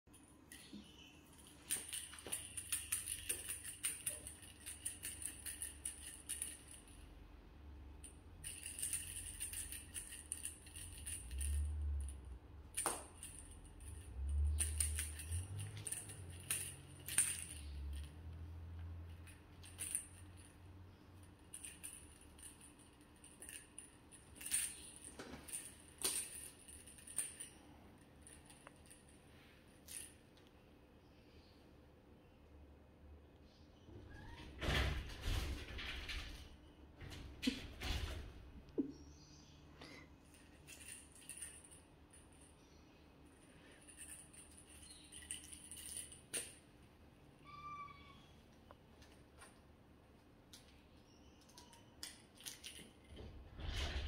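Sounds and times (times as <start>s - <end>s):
jingle bell on cat toy: 0.1s - 7.2s, 8.0s - 29.2s, 40.3s - 46.4s.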